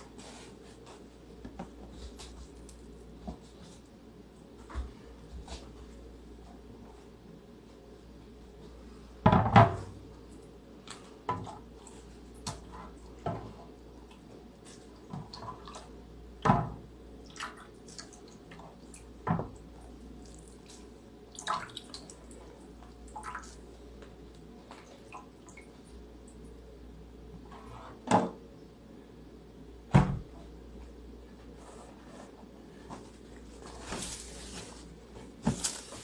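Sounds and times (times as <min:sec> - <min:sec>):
water dripping and splashing: 0:20.1 - 0:23.7
foil and dish knocking: 0:35.4 - 0:36.0.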